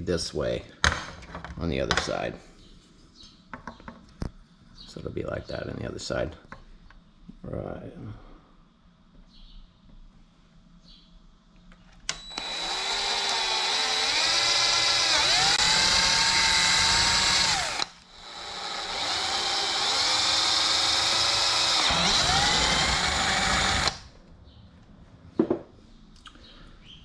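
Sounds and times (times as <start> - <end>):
power drill boring through plastic: 12.1 - 24.1.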